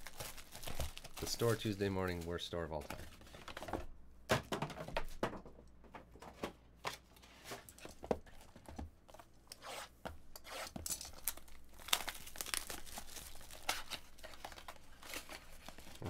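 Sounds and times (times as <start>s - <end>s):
cellophane crinkling: 0.0s - 3.2s, 10.9s - 16.0s.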